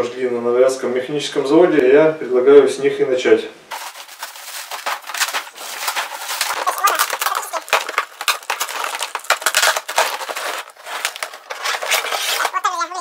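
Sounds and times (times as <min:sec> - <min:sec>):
cardboard and plastic wrap tearing: 0:03.7 - 0:13.0.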